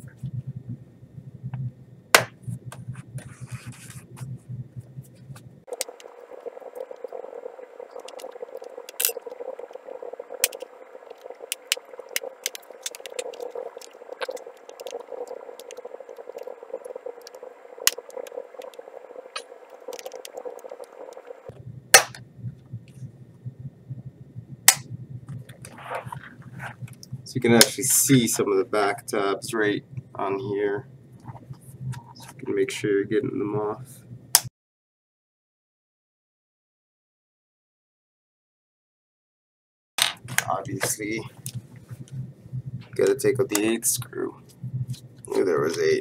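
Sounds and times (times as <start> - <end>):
light scraping: 25.5 - 27.0.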